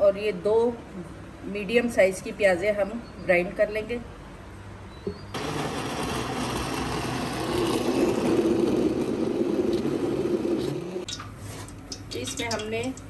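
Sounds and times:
electric blender running: 0:05.4 - 0:11.0.

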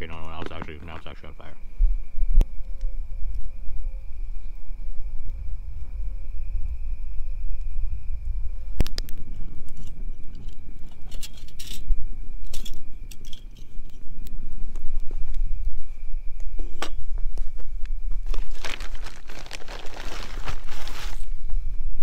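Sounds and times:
steady low rumble: 0:00.0 - 0:22.0
rustling and crinkling: 0:16.4 - 0:21.6.

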